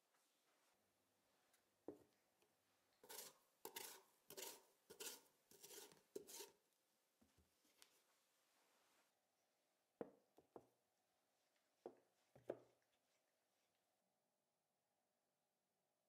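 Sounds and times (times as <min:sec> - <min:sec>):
knife scratching sweet potato: 0:03.0 - 0:06.6.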